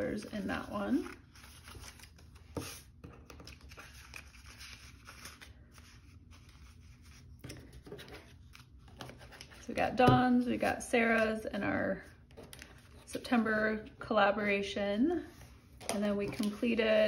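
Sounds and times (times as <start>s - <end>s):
paper and plastic rustling: 15.4s - 17.0s.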